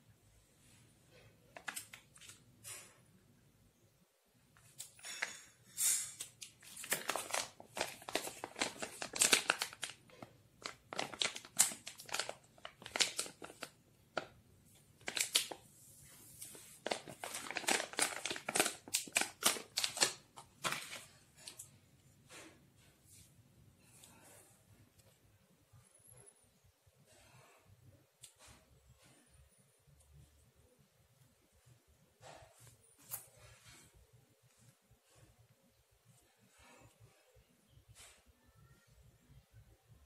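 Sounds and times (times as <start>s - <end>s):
plastic packaging crinkling: 1.5s - 2.4s, 6.1s - 15.7s, 16.3s - 21.8s.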